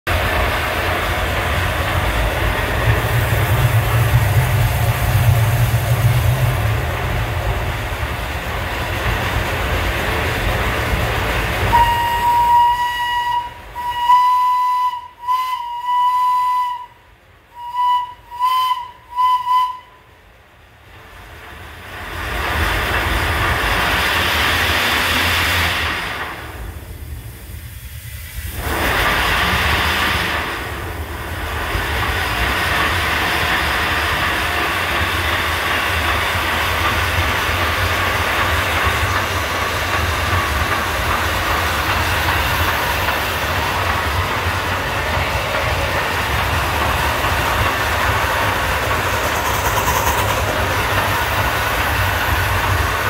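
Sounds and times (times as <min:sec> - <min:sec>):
steam locomotive hissing: 0:00.1 - 0:53.0
steam whistle blasts: 0:11.7 - 0:20.1.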